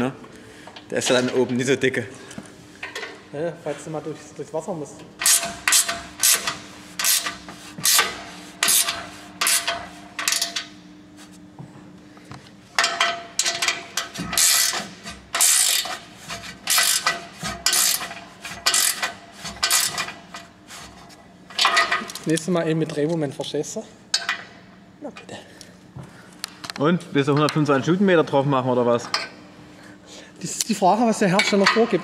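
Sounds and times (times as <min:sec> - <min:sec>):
ratchet wrench rasping strokes: 0:05.2 - 0:10.6, 0:14.3 - 0:20.1.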